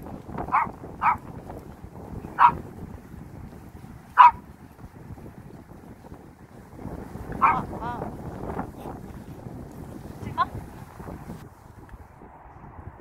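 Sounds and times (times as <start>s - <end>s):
small dog barking: 0.4s - 1.4s, 2.2s - 2.7s, 4.1s - 4.5s, 7.4s - 7.8s.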